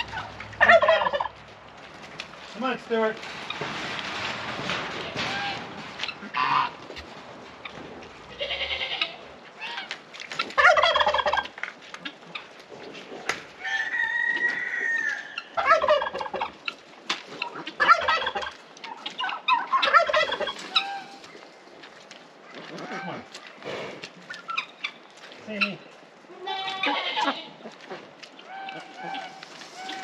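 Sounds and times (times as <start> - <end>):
poultry calls: 0.0 - 1.4, 5.1 - 12.6, 13.6 - 21.5, 24.3 - 30.0
turkeys gobbling: 0.0 - 2.1, 5.2 - 21.8, 22.4 - 23.5, 24.2 - 25.9, 26.7 - 30.0.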